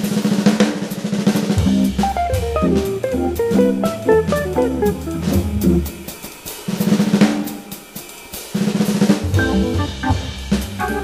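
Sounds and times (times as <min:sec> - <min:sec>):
drum kit: 0:00.0 - 0:11.0
organ jazz: 0:01.5 - 0:07.2, 0:09.2 - 0:11.0.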